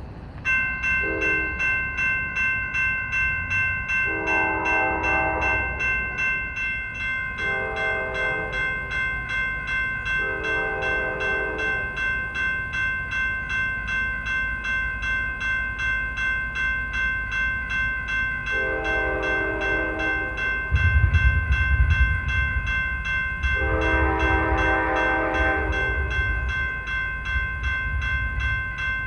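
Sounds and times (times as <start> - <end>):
crossing bell ringing: 0.0 - 29.0
train rumble: 0.0 - 29.0
train horn blasts: 1.0 - 1.6, 4.1 - 5.9, 7.4 - 8.7, 10.2 - 11.9, 18.5 - 20.5, 23.5 - 26.4.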